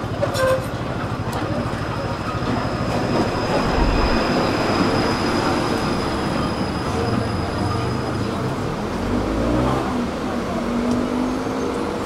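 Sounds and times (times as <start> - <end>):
tram wheels rumbling on rails: 0.0 - 12.0
high-pitched wheel squeal: 2.3 - 8.4.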